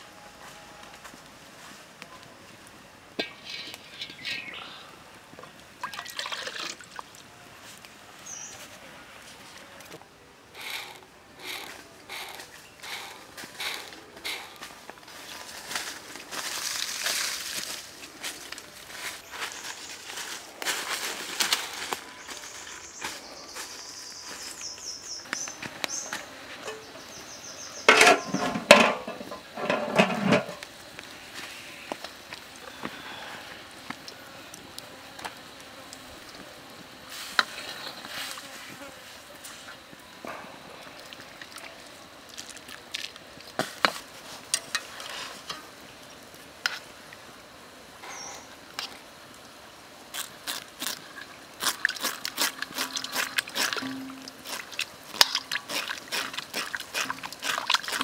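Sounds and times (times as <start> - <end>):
knocks and rustles: 27.9 - 30.6
insect chirring: 39.6 - 58.0
knife scraping snake skin: 50.2 - 58.0.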